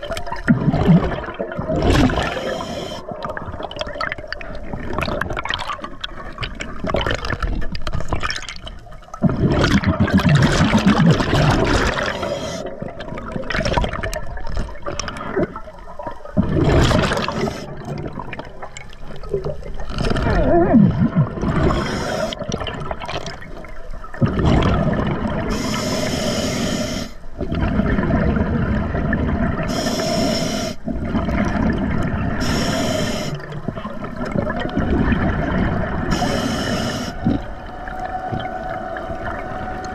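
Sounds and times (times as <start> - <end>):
exhaled bubbles gurgling: 0.0 - 39.9
regulator hissing inhalations: 2.2 - 3.1, 12.0 - 12.7, 21.7 - 22.4, 25.5 - 27.3, 29.7 - 30.8, 32.4 - 33.5, 36.1 - 37.4.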